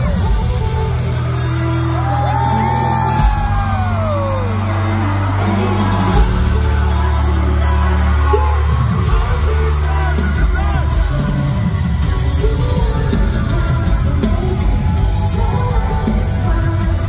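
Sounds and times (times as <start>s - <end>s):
live rock pop music: 0.0s - 17.0s
person singing: 0.0s - 17.0s
crowd shouting: 1.6s - 17.0s.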